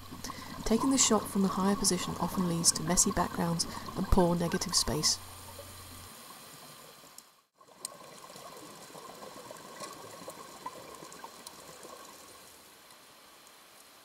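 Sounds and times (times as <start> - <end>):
small clicks and crackles: 5.5 - 14.0.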